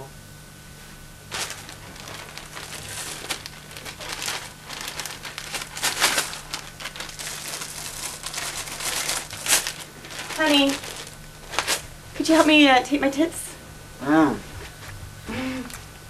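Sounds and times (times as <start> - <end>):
plastic bag crinkling: 1.2 - 12.7.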